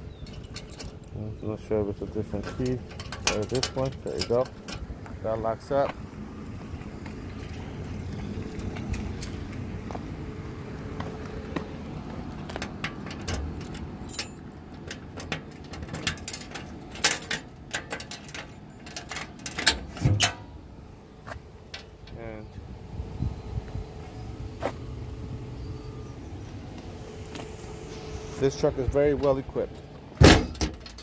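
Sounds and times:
keys jangling: 0:00.1 - 0:01.2, 0:02.4 - 0:04.8, 0:12.6 - 0:20.3
sharp clicks and knocks: 0:12.4 - 0:20.4.

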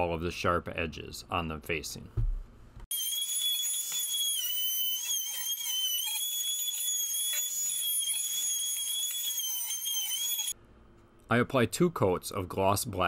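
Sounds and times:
router high-pitched whine: 0:02.9 - 0:10.5.

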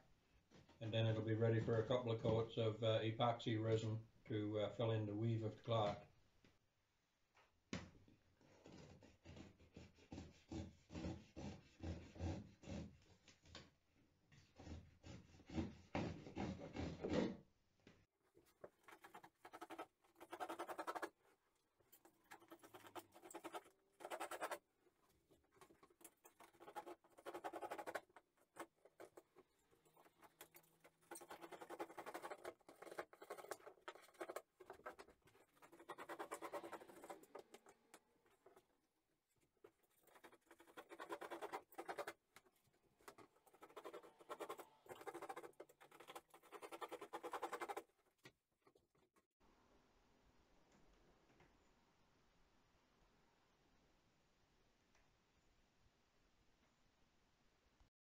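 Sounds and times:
knife cutting rubbery cloth: 0:08.6 - 0:13.6, 0:22.0 - 0:38.6, 0:39.5 - 0:48.0.

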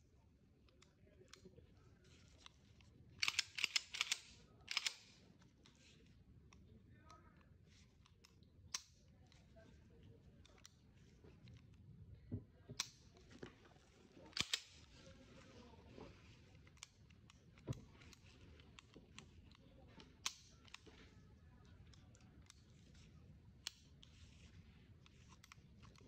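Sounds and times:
pistol mechanism clicks: 0:03.2 - 0:05.2, 0:14.3 - 0:14.9, 0:20.2 - 0:20.8
handling rustle: 0:13.1 - 0:26.0.

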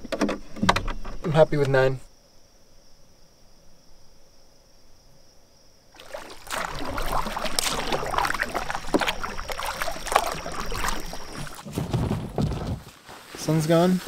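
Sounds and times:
insect trill: 0:00.0 - 0:11.7
paddle splashing in water: 0:06.0 - 0:12.9.

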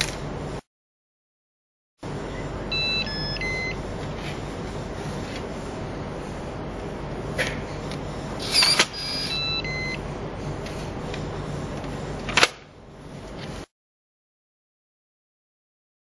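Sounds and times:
electronic beeps: 0:02.3 - 0:03.8, 0:08.4 - 0:10.0.

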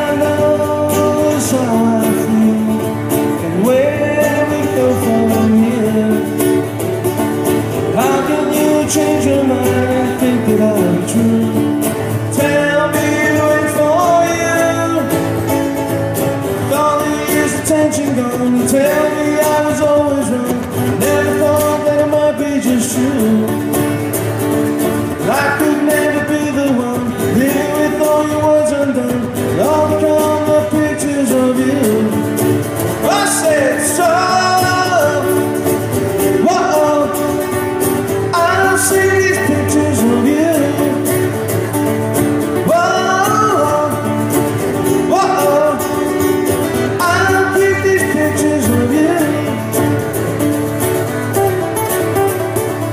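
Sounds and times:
person singing: 0:00.0 - 0:06.8, 0:07.7 - 0:15.5, 0:25.2 - 0:41.7, 0:42.4 - 0:50.4
acoustic guitar: 0:00.0 - 0:52.9.

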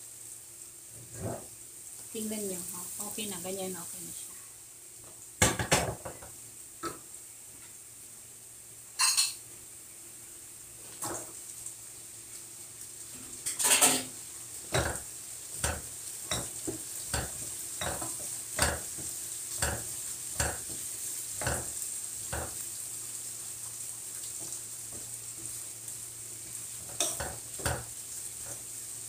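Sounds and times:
food sizzling in pan: 0:00.0 - 0:29.0
wooden spoon knocking on pan: 0:05.4 - 0:07.0, 0:14.7 - 0:22.6, 0:26.9 - 0:27.9.

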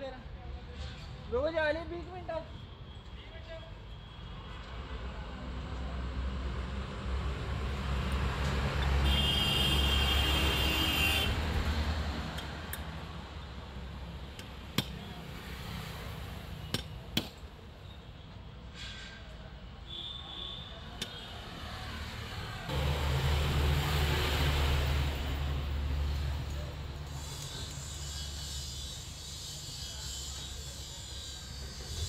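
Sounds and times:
hammer tapping on metal: 0:14.4 - 0:15.0
passing road vehicle: 0:21.4 - 0:27.9.

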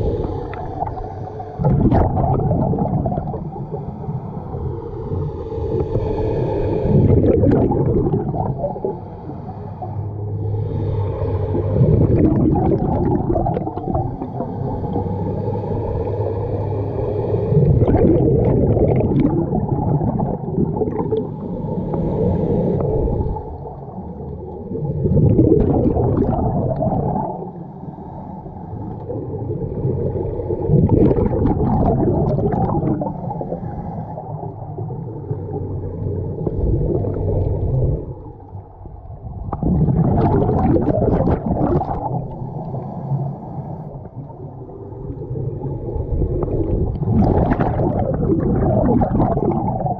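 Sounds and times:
bubbling exhalations: 0:00.0 - 0:03.8, 0:06.8 - 0:09.1, 0:11.5 - 0:15.1, 0:17.6 - 0:21.5, 0:24.8 - 0:27.5, 0:29.0 - 0:34.9, 0:38.8 - 0:42.8, 0:46.0 - 0:49.9
diver breathing through regulator: 0:03.5 - 0:12.2, 0:21.0 - 0:23.6.

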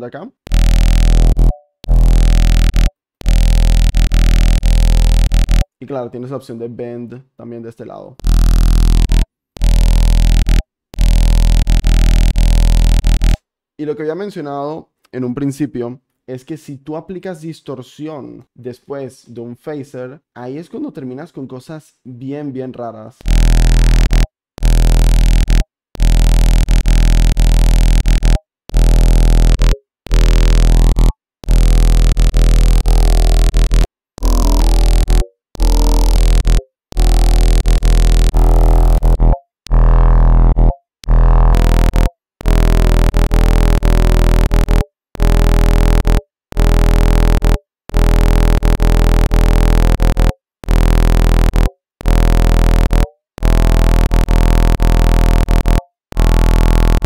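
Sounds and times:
heavy sub-bass: 0:00.0 - 0:05.7, 0:08.2 - 0:13.4, 0:23.2 - 0:57.0
phased distorted synth bass: 0:00.0 - 0:05.7, 0:08.2 - 0:13.4, 0:23.2 - 0:57.0.

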